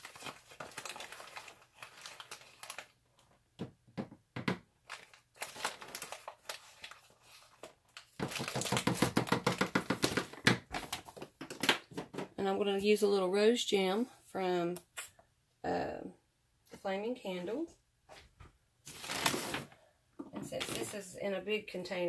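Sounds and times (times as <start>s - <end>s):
plastic packaging crinkling: 0.0s - 3.4s, 4.7s - 12.2s, 18.9s - 19.8s, 20.5s - 21.1s.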